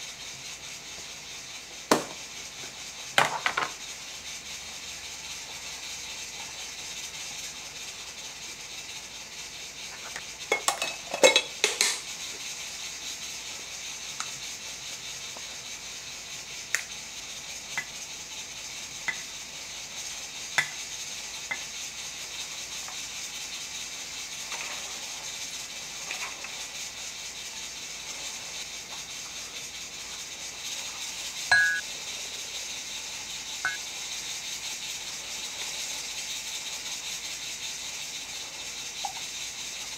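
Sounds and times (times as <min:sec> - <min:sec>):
steady hiss: 0:00.0 - 0:39.9
dishes and utensils clattering: 0:10.0 - 0:12.0.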